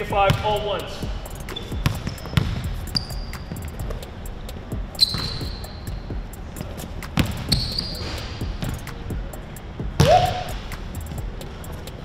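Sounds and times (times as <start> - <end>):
sneaker squeaks: 1.4 - 9.1, 10.0 - 10.6
basketball bouncing on hardwood: 1.6 - 4.0, 5.0 - 5.6, 6.6 - 7.9.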